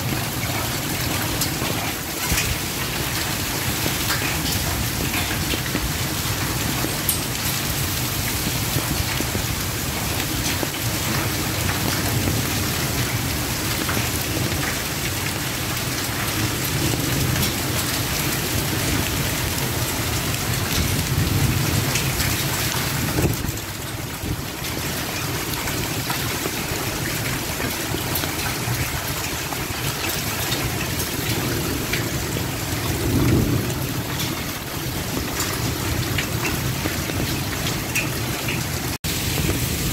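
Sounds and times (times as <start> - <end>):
heavy rain pouring: 0.0 - 39.9
low rolls of thunder: 31.2 - 37.7.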